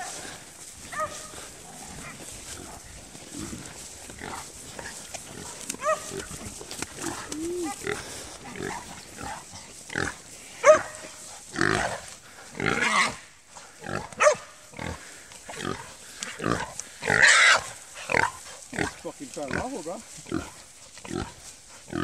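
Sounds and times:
hog squealing and grunting: 17.1 - 17.7.

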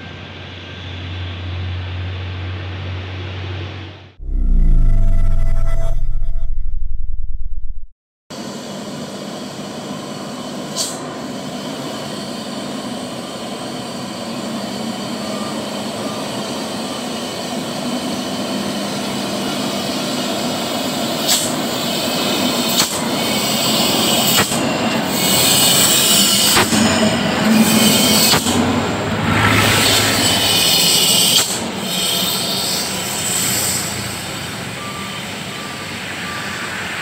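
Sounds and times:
truck diesel engine: 27.2 - 32.0.

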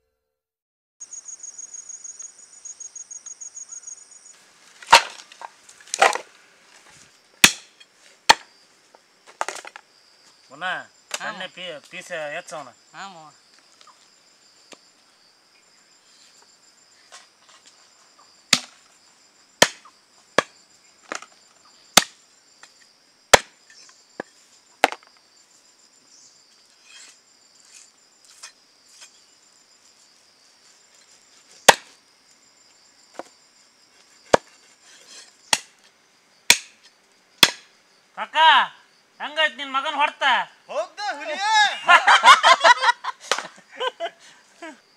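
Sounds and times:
crickets chirring: 1.0 - 44.9
blade chopping on board: 23.3 - 23.5, 31.7 - 31.9, 36.5 - 36.8, 37.4 - 37.6.

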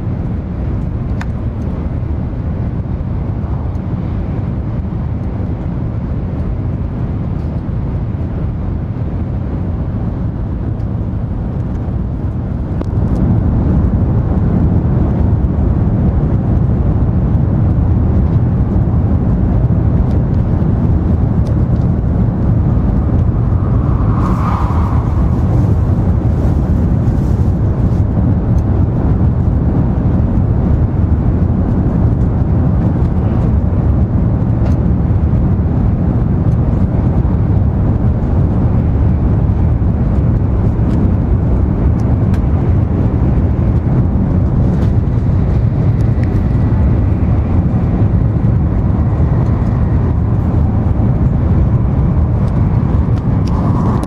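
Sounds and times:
train interior rumble: 0.0 - 54.0
faint high whine: 22.7 - 26.3.

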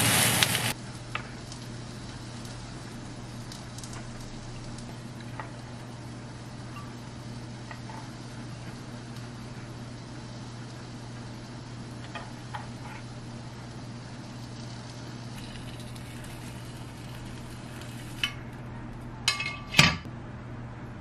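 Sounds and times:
metal spoon clinking: 19.3 - 20.0.

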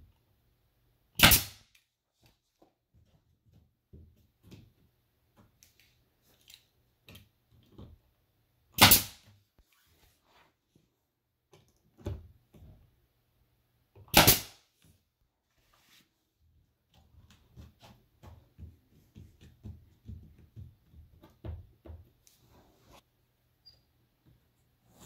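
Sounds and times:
pneumatic nailer firing: 1.2 - 1.6, 8.8 - 9.2, 14.1 - 14.6.

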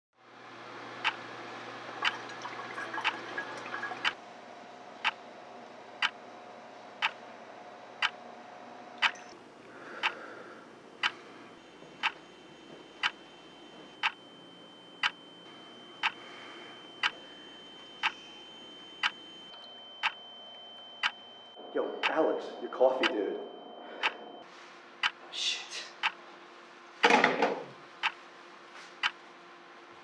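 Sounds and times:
thin steady tone: 9.0 - 24.5
wall clock ticking: 12.0 - 12.2, 14.0 - 14.2, 16.0 - 16.2.

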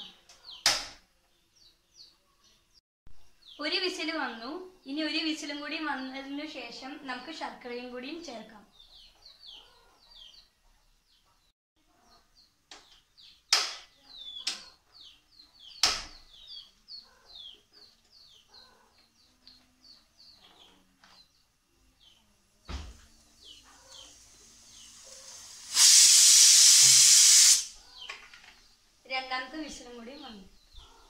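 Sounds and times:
birds chirping: 0.0 - 25.7, 27.1 - 31.0
pressure cooker steam hiss: 24.0 - 27.8.

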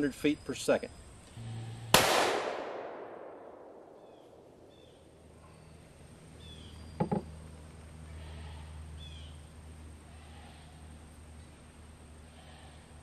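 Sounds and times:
rifle shot echoing: 1.9 - 5.0
faint bird chirps: 3.9 - 7.4.

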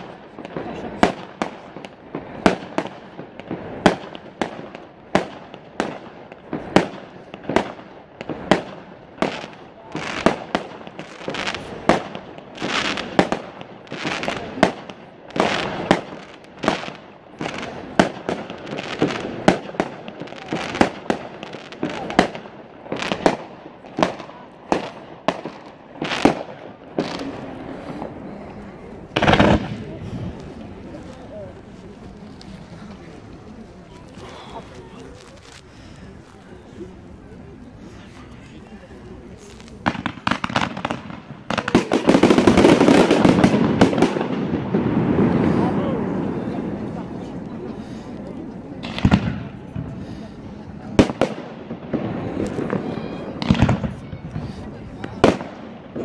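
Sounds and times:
firework shells bursting: 0.0 - 36.4, 39.3 - 45.8
fireworks crackling: 0.0 - 56.0.

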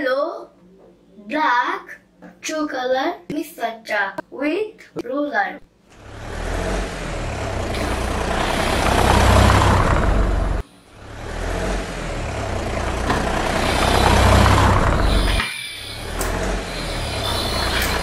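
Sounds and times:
toy truck rolling on tabletop: 12.7 - 18.0.

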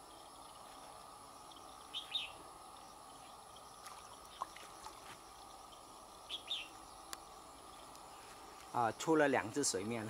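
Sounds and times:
faint outdoor background noise: 0.0 - 10.0
faint ticks: 7.0 - 8.8.

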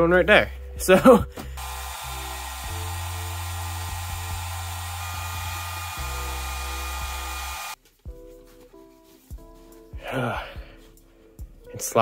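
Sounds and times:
hair dryer blowing: 1.6 - 7.8.

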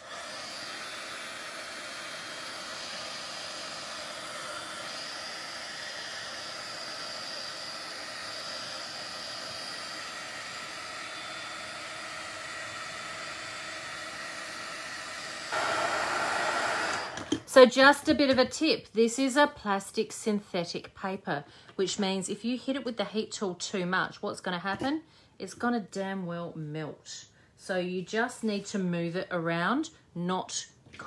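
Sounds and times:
heat tool blowing air: 0.0 - 17.6.

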